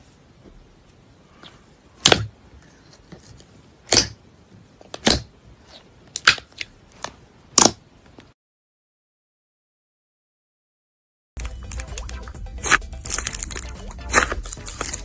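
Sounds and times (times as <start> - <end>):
slime popping: 12.6 - 15.0.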